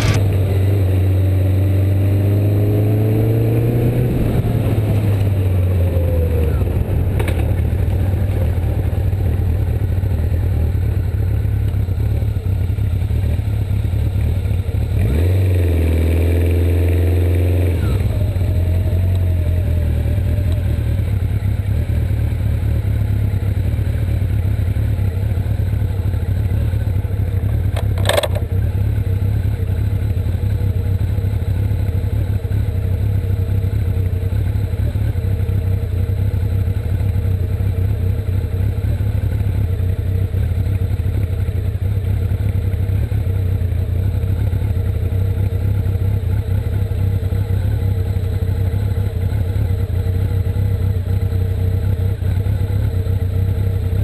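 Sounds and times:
sharp click: 0:00.0 - 0:00.4, 0:27.7 - 0:28.5
motorcycle engine running: 0:00.0 - 0:54.0.

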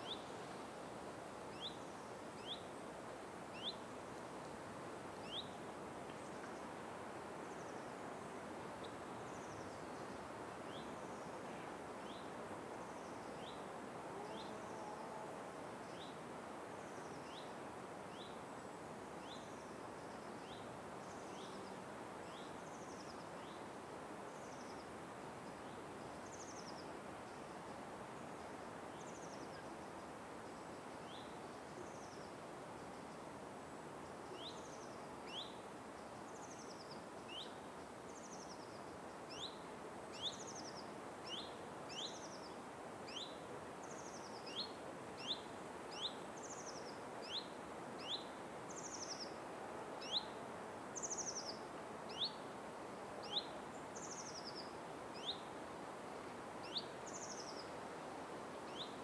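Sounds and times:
steady background hiss: 0:00.0 - 0:59.0.

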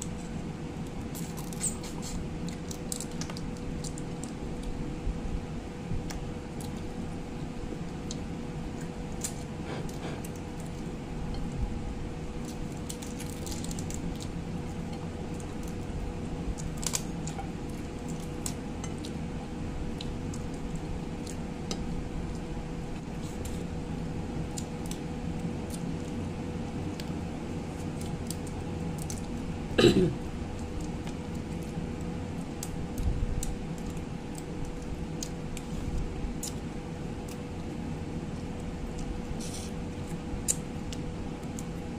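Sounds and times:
steady low hum: 0:00.0 - 0:41.9
crab shell cracking: 0:16.6 - 0:19.2.

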